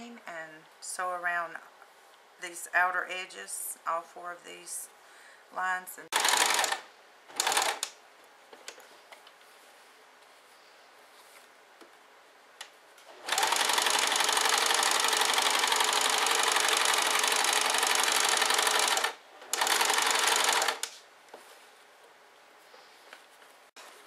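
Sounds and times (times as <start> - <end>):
sewing machine stitching: 6.1 - 7.9, 13.1 - 20.9.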